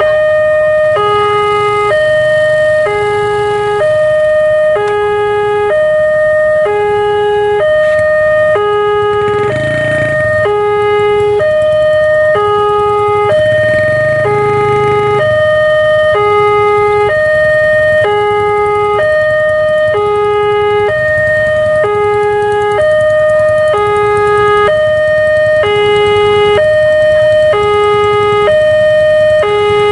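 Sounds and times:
motorcycle and truck engines: 0.0 - 29.9
two-tone crossing alarm: 0.0 - 29.9.

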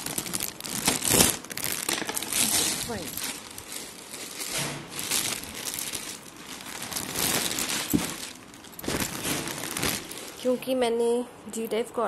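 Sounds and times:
plastic bags crinkling: 0.0 - 10.7.

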